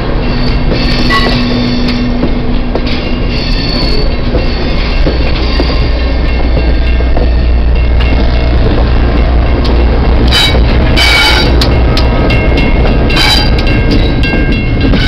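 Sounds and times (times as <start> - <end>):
train rumbling past: 0.0 - 15.0
wheels clicking over rails: 0.1 - 15.0
high-pitched wheel squeals: 0.2 - 2.1, 3.3 - 5.8.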